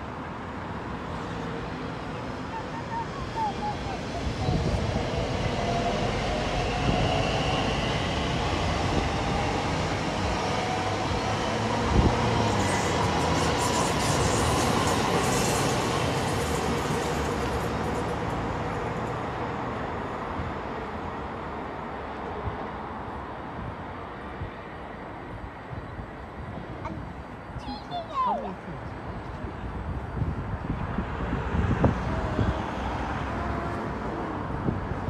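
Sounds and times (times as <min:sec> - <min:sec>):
train wheels rumbling on rails: 0:01.5 - 0:20.6.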